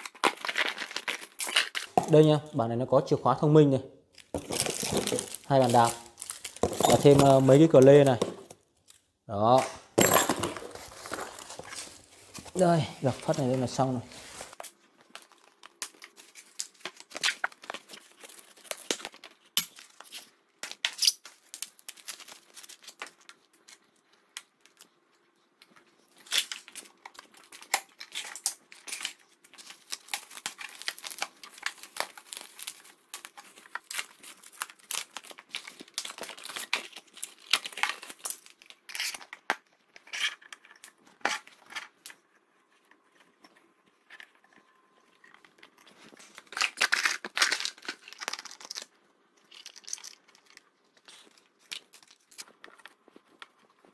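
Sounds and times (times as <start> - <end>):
plastic wrap crinkling: 0.0 - 2.2, 4.1 - 8.2, 10.6 - 20.2, 26.1 - 39.4, 45.5 - 53.9.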